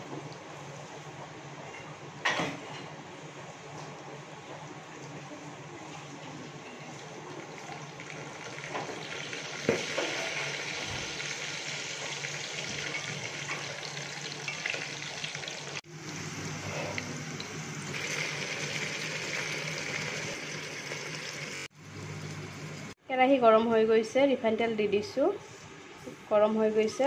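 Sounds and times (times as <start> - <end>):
chicken sizzling in pot: 7.4 - 23.0.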